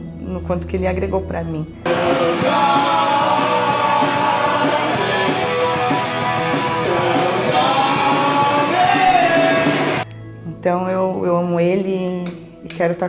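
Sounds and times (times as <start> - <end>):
rock backing music: 1.8 - 10.4
man and woman singing: 1.9 - 10.0.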